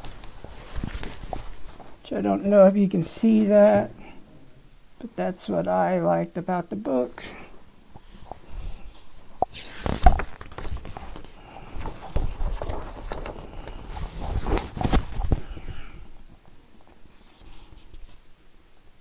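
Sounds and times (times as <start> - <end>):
book pages rustling: 0.0 - 2.0, 7.9 - 18.2.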